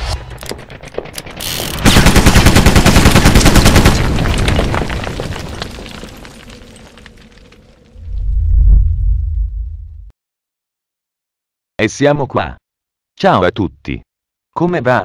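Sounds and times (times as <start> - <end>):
rapid machine-gun fire: 1.7 - 4.8.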